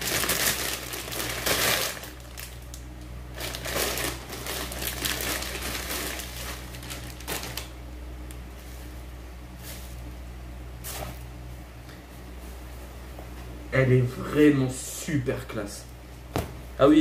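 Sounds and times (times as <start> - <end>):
plastic packaging crinkling: 0.0 - 7.8.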